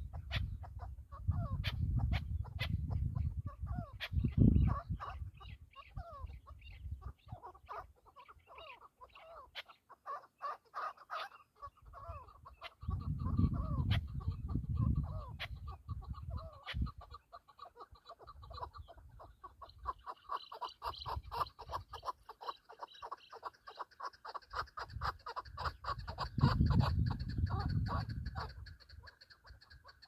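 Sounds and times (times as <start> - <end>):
wind rumbling on microphone: 0.0 - 7.8, 11.7 - 17.2, 20.8 - 22.0, 24.5 - 29.1
partridge calling: 0.0 - 30.0.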